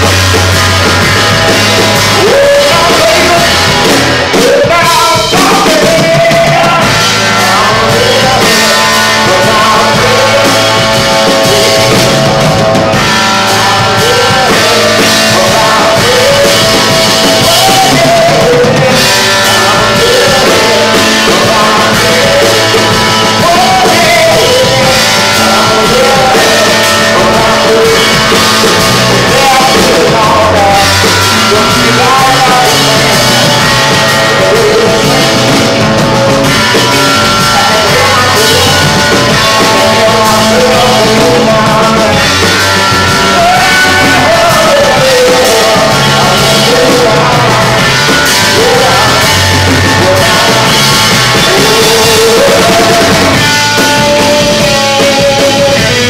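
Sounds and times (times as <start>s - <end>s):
electric bass: 0.0s - 56.0s
electric guitar: 0.0s - 56.0s
man singing: 0.0s - 56.0s.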